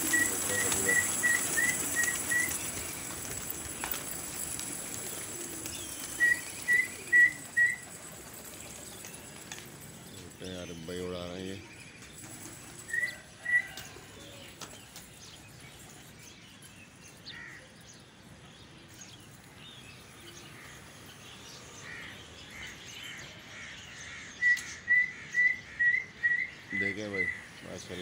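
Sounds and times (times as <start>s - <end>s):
open-air background noise: 0.0s - 28.0s.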